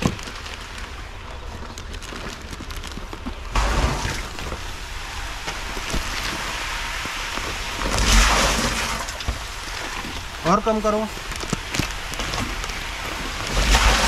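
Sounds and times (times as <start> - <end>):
water pouring into plastic tank: 3.3 - 14.0.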